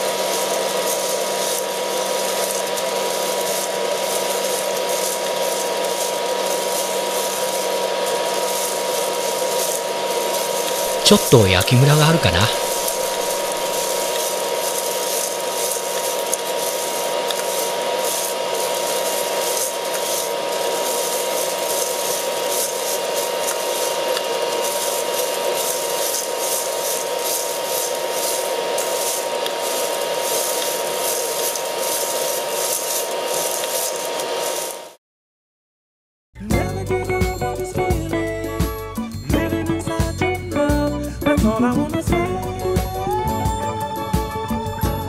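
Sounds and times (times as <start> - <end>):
fan running with faint whine: 0.0 - 34.9
coffee beans rustling: 0.0 - 35.0.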